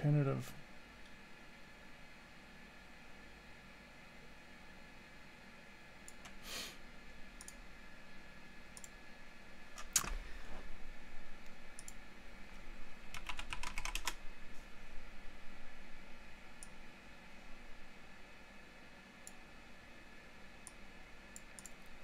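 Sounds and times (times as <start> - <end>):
faint steady hum: 0.0 - 22.0
keyboard keys clicking: 9.8 - 10.2, 13.1 - 14.2.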